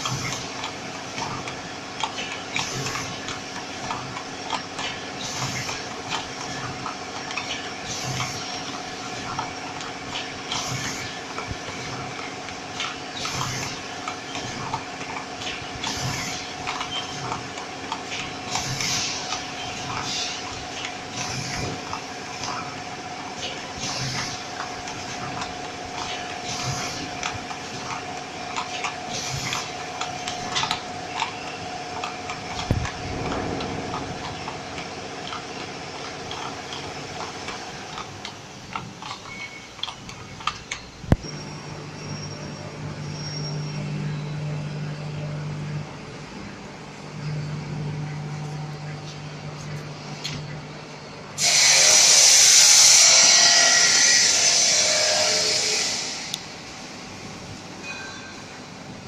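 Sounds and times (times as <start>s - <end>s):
fast mechanical clicking: 0.0s - 41.2s
packaging machine hum: 0.0s - 59.0s
short machine hiss: 51.4s - 56.6s.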